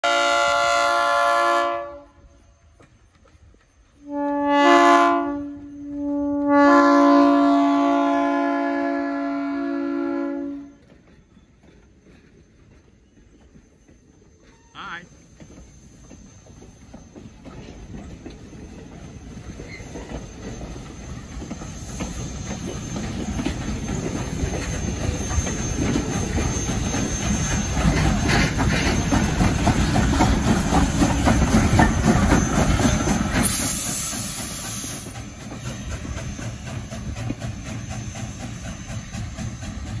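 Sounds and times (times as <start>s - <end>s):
steam train rumbling past: 0.0s - 40.0s
wheels clicking over rail joints: 10.8s - 40.0s
loud hiss of steam: 18.3s - 40.0s.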